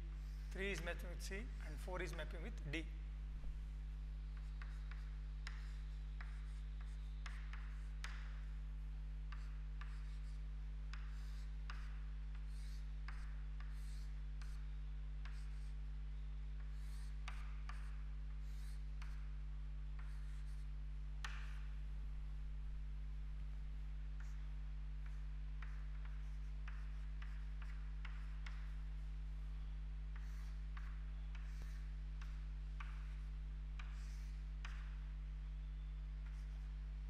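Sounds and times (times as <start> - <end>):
low electrical hum: 0.0 - 37.0
chalk scratching on chalkboard: 4.3 - 8.6, 9.3 - 15.9, 16.6 - 19.4, 20.0 - 21.7, 24.2 - 28.9, 30.1 - 35.0, 36.2 - 36.8.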